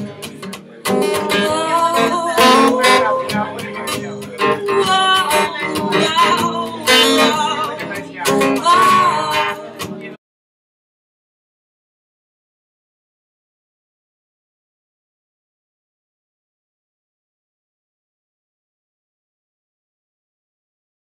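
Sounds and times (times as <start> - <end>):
acoustic guitar strumming: 0.0 - 10.2
person singing: 0.3 - 10.0.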